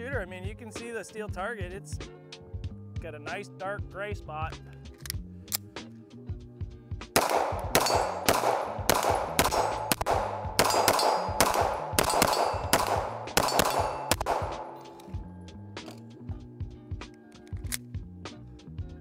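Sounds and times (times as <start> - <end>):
pistol shots ringing: 7.2 - 15.2.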